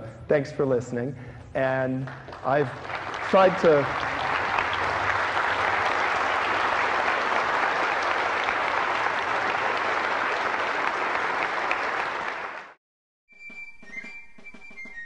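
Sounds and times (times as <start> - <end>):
audience applauding: 2.0 - 12.8.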